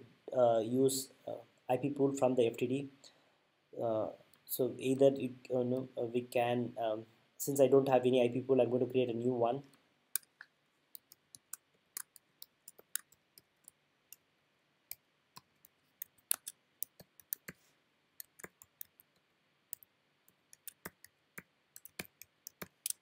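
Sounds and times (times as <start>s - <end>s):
typing on computer keyboard: 20.5s - 23.0s.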